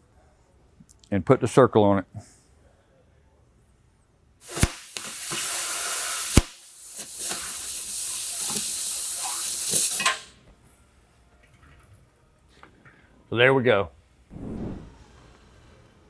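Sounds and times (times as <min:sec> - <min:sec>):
cutting torch hissing: 0:04.4 - 0:10.0
sharp cracks: 0:14.3 - 0:15.4.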